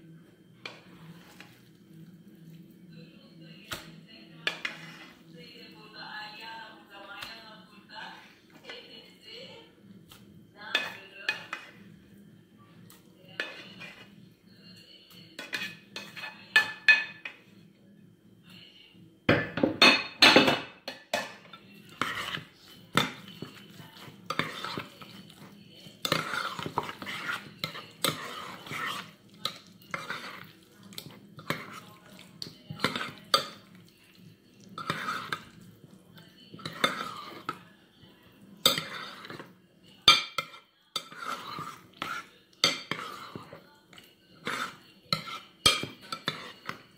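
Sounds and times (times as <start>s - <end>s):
spoon scraping glass bowl: 4.4s - 5.3s, 13.3s - 14.2s, 15.4s - 17.1s, 21.7s - 35.7s, 36.5s - 37.6s, 38.6s - 39.5s, 40.1s - 46.9s.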